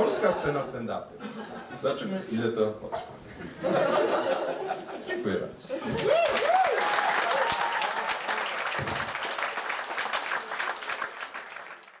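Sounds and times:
people cheering: 5.7 - 11.9
audience applauding: 5.8 - 12.0.

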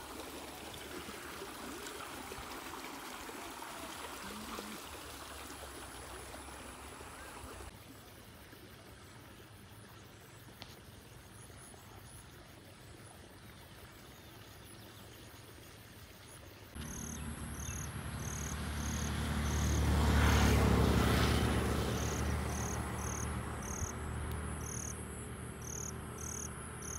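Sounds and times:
insects chirping: 3.8 - 26.9
vehicle passing rumble: 16.8 - 26.9.

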